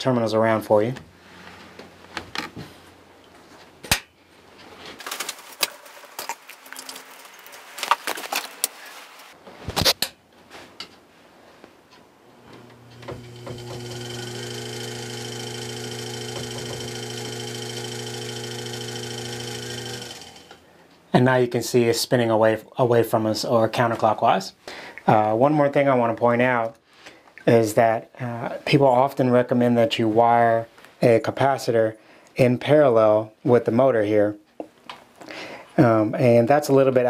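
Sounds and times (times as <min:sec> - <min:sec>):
electric motor humming and whining: 0:12.4 - 0:20.6.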